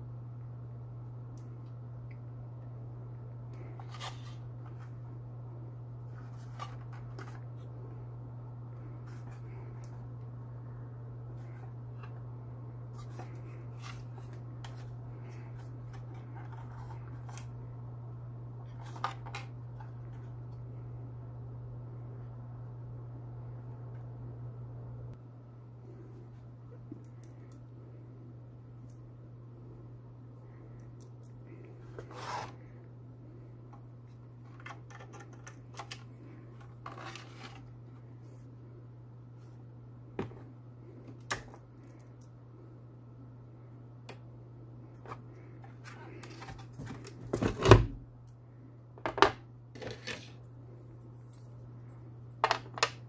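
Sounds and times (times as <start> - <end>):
steady low hum: 0.0 - 53.0
handling plastic and metal: 34.3 - 38.0, 45.0 - 48.0.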